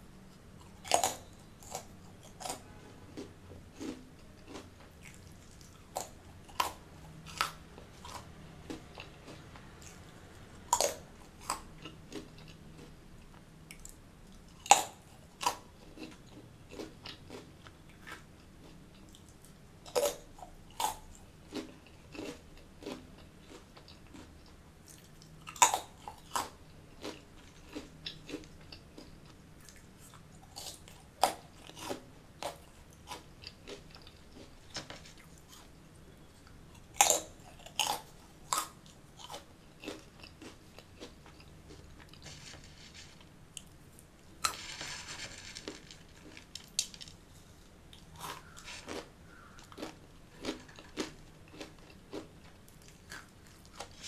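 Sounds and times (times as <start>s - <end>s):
chewing crunches: 0.6s - 35.8s, 36.4s - 47.0s, 47.9s - 54.0s
loud crunching bites: 48.0s - 54.0s.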